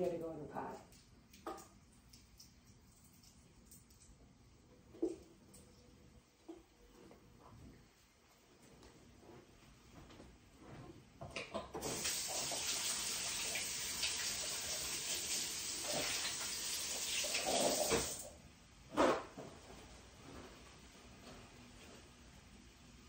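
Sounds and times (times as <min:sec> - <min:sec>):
tap water running into sink: 0:11.8 - 0:18.3.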